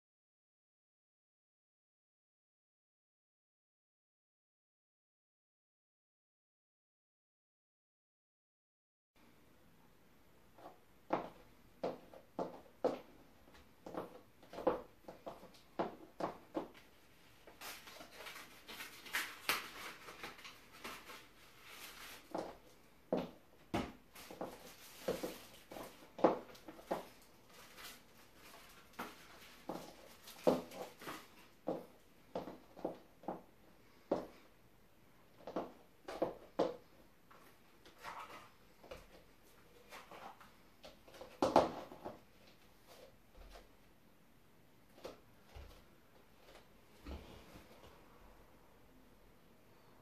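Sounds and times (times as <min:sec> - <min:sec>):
packaging rustling and crinkling: 0:17.6 - 0:22.4, 0:24.2 - 0:31.4
high-heel steps on hard floor: 0:22.3 - 0:27.2, 0:29.0 - 0:33.5, 0:35.4 - 0:36.9.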